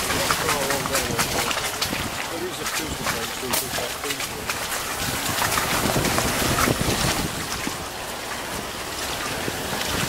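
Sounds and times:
wind noise on microphone: 0.0 - 10.0.

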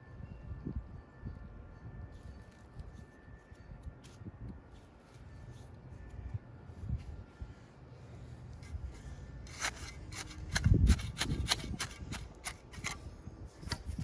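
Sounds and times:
hand tool scraping soil: 8.5 - 14.0.

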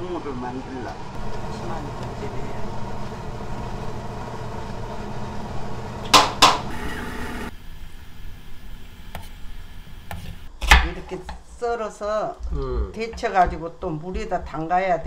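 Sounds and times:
broth boiling and bubbling: 1.1 - 10.5.

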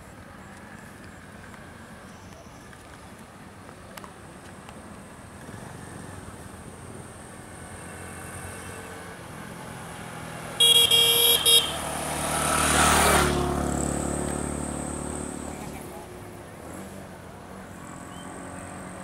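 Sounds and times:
vehicle driving past: 7.4 - 19.0
vehicle horn tooting: 10.6 - 11.8.

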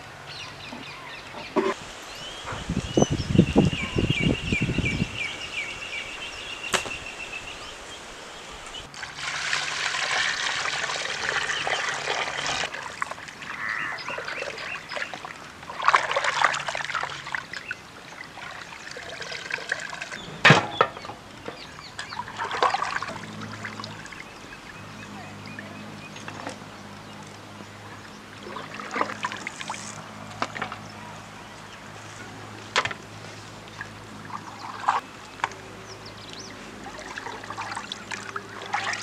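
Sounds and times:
sharp knock: 6.7 - 7.0
water sloshing in a metal pot: 8.9 - 20.2, 21.9 - 24.2, 28.4 - 30.8, 33.8 - 35.5, 36.8 - 39.0.

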